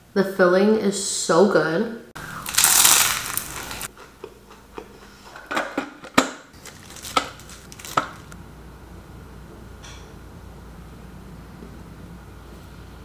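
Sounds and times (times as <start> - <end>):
teeth crunching crispy food: 2.4 - 3.9.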